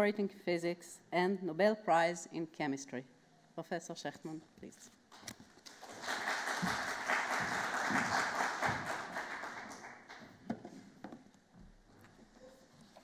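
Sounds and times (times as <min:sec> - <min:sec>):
audience applauding: 0:05.7 - 0:10.4.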